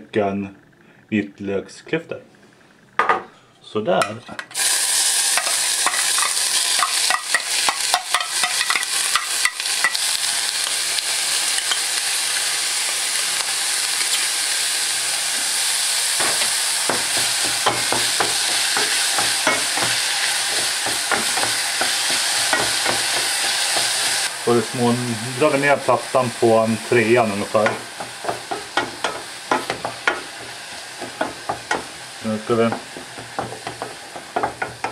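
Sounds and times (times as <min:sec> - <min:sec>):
onion and garlic sizzling in a pan: 0:04.5 - 0:34.9
spoon scraping a pan: 0:05.3 - 0:10.0, 0:16.2 - 0:24.2, 0:27.5 - 0:34.9.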